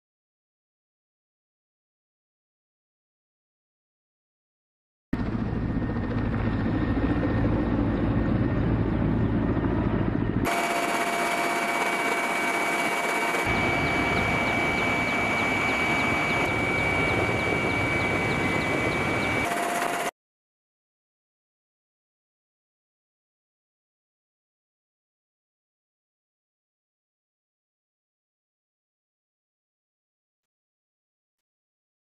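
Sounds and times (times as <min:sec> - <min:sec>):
helicopter flying: 0:05.2 - 0:20.1
high turbine whine: 0:05.2 - 0:20.1.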